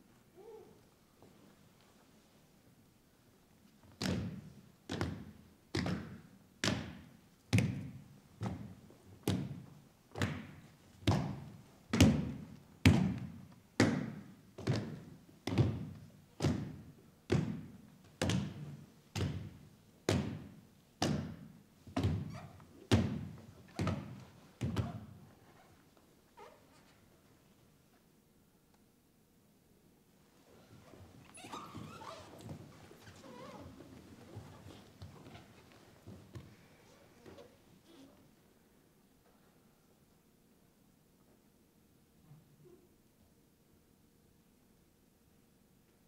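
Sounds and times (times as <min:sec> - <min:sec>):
heavy thuds echoing in hall: 0:03.9 - 0:25.2.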